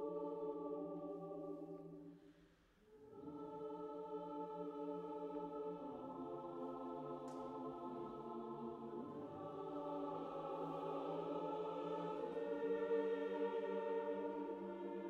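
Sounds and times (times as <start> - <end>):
choir singing long chords: 0.0 - 2.2, 2.9 - 15.0.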